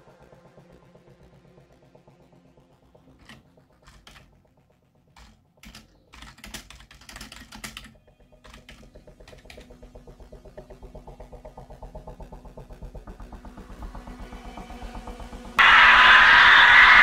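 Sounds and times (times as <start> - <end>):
laptop keyboard typing: 3.2 - 4.3, 5.1 - 9.7.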